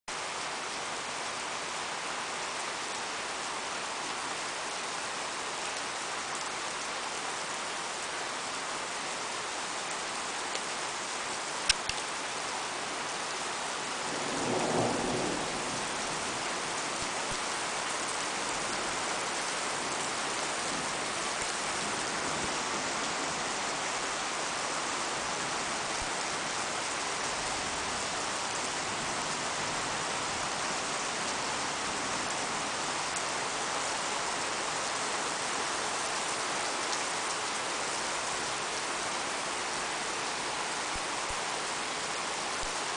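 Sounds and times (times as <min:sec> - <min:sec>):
rain on pavement: 0:00.1 - 0:42.9
sharp click: 0:11.7 - 0:12.0.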